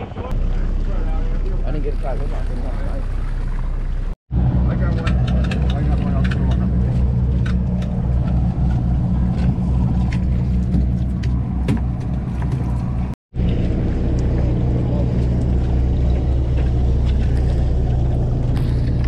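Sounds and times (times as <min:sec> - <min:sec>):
boat engine droning: 0:00.0 - 0:19.0.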